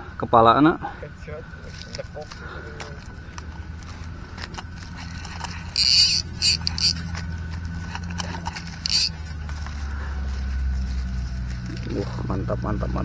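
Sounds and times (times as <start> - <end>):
fish flopping on dry leaves: 1.7 - 12.3.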